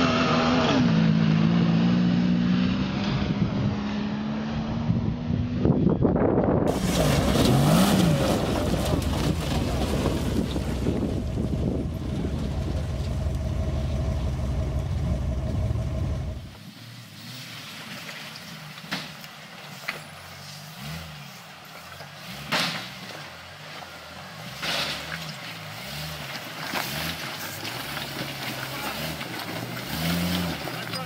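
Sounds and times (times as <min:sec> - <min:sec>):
off-road vehicle engine revving: 0:00.0 - 0:16.6, 0:20.3 - 0:31.0
wind on microphone: 0:04.7 - 0:13.3.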